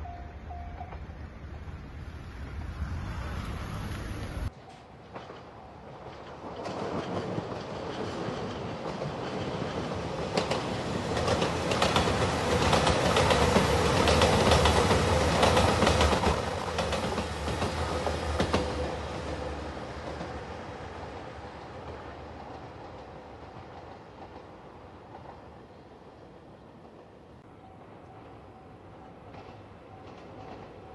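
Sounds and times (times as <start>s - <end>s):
train passing by: 0.0s - 30.9s.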